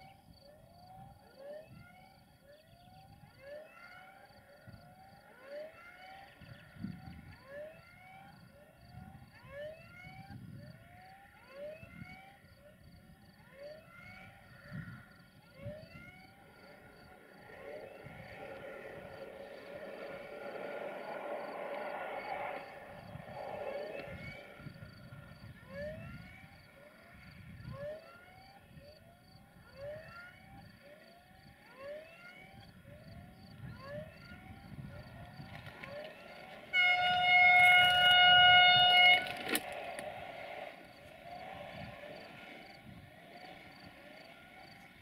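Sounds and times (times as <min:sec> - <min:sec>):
train horn chord: 0:36.7 - 0:39.6.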